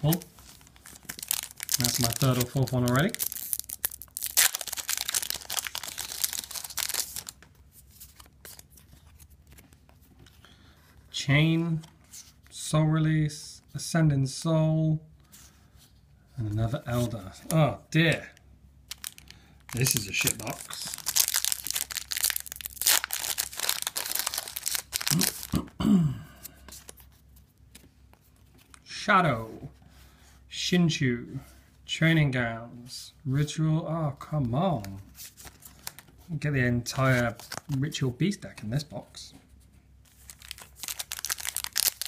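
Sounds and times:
foil pack tearing and crinkling: 0.0 - 7.4, 18.9 - 25.6, 40.3 - 42.0.

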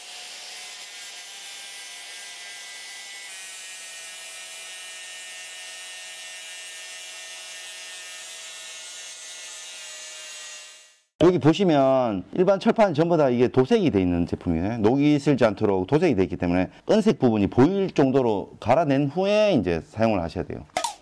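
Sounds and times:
angle grinder grinding steel: 0.0 - 11.0.

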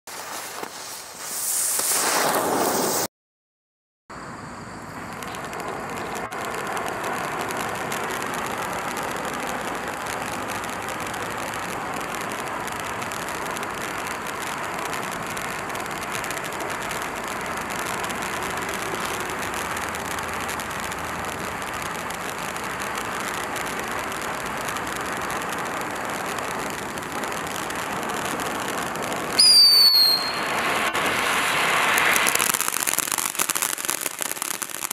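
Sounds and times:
firework fountain hissing: 0.1 - 3.1, 4.2 - 34.9
falling whistle: 29.3 - 30.6.

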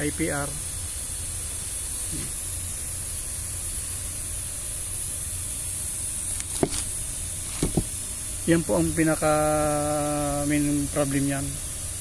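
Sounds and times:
steady hiss: 0.0 - 12.0
short knock: 7.6 - 7.9.

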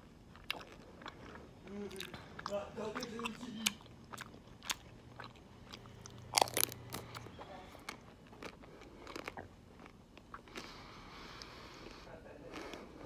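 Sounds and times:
ice cream shell crunching: 0.0 - 10.8
close-up chewing with crackles: 0.0 - 13.0.

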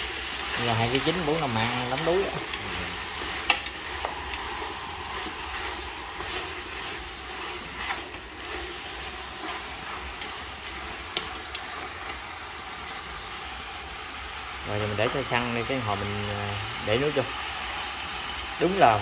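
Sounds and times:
frying hiss: 0.0 - 19.0
chopsticks clicking against pot: 0.3 - 4.5, 9.4 - 12.2.

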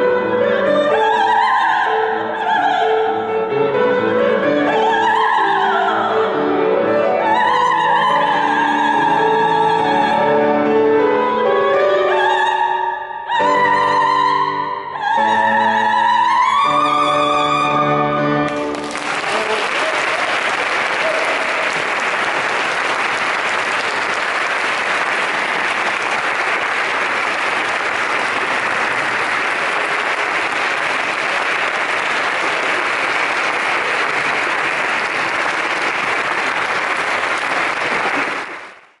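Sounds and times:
audience applause: 18.5 - 39.0.

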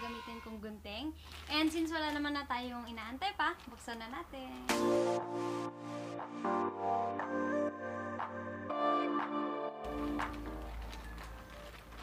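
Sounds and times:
slow music of held chords: 4.7 - 12.0.

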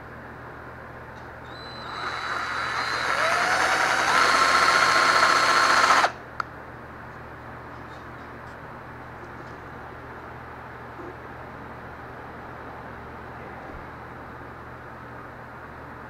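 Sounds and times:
cordless drill whining: 1.5 - 6.2.

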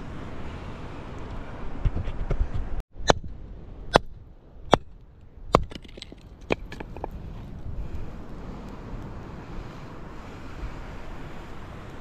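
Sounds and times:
steady wind noise: 0.0 - 12.0
sharp chopping strikes: 3.0 - 7.1.

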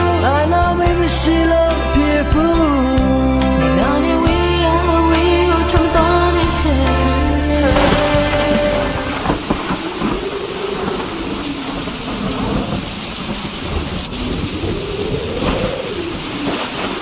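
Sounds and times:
steady rain falling: 3.8 - 17.0
rumbling thunder: 5.5 - 17.0.

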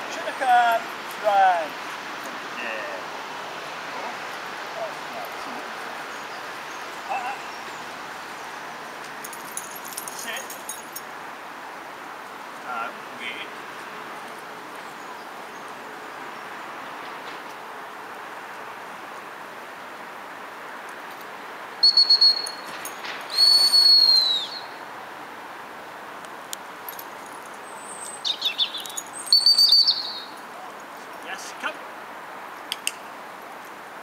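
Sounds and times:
dog training whistle: 21.8 - 22.7, 23.3 - 24.8, 28.9 - 30.3.

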